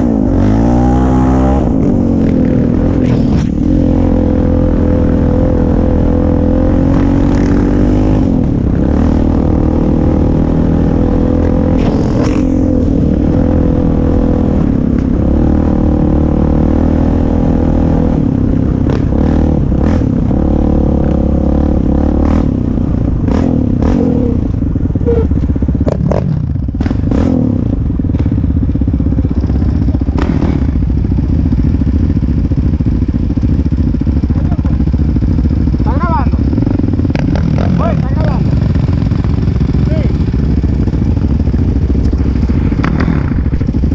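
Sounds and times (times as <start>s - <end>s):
atv engine running: 0.0s - 43.9s
knocks and rattles over trail: 17.8s - 43.9s.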